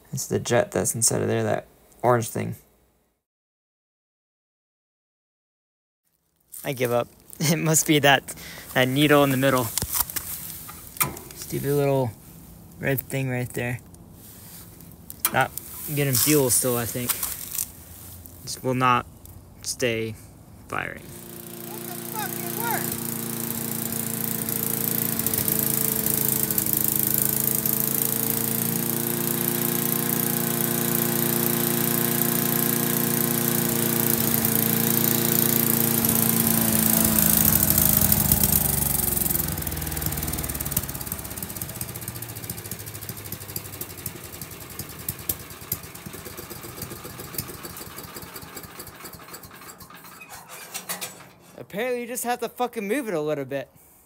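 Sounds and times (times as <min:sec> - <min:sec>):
small engine running: 0:06.8 - 0:18.4, 0:20.8 - 0:51.7.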